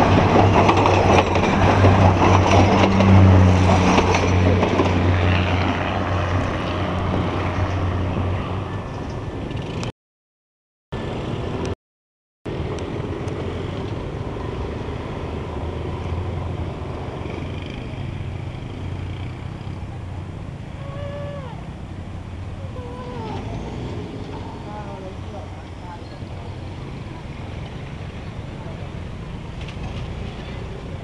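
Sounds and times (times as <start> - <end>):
diesel train engine rumble: 0.0 - 9.8, 12.5 - 31.0
short falling cries: 20.8 - 21.7, 22.6 - 23.6.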